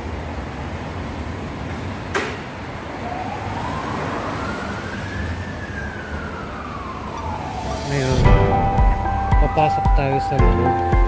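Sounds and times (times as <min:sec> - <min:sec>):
siren wailing: 0:02.8 - 0:09.6.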